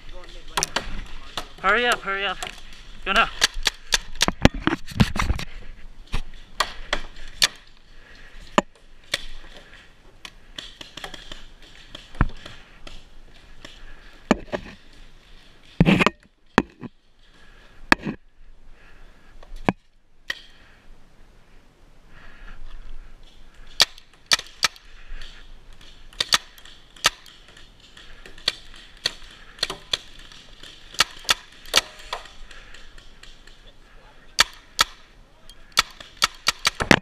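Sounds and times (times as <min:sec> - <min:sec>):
paintball marker shots: 0:26.1 - 0:30.1, 0:34.4 - 0:35.1, 0:35.7 - 0:37.0.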